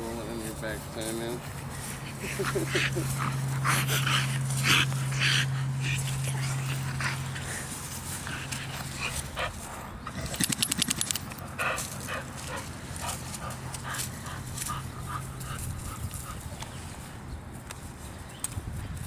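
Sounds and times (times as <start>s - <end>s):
dog scuffing on grass: 0.0s - 9.9s
dog rolling on dry leaves: 0.0s - 18.3s.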